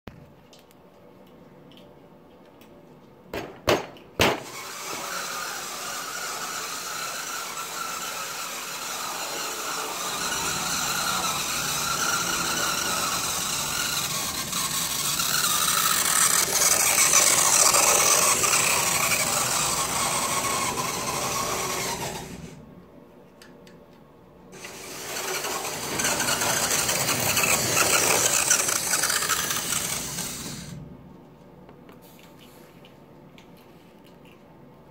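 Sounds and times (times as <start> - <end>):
model train running on track: 4.6 - 22.4, 24.6 - 30.7.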